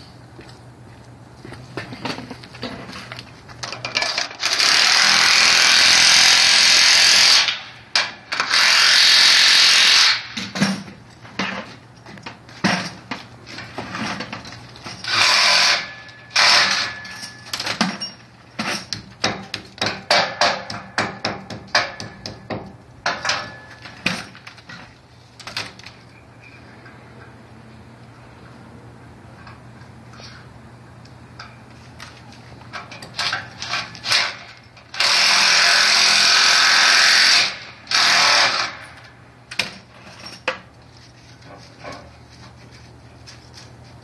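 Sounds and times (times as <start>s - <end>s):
hammer drill boring into concrete: 4.4s - 7.6s, 8.3s - 10.2s, 15.0s - 16.9s, 34.9s - 38.8s.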